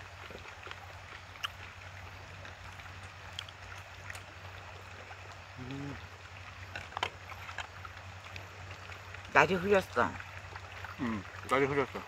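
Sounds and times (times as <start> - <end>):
steady outdoor hiss: 0.0 - 12.0
person humming: 5.6 - 6.0.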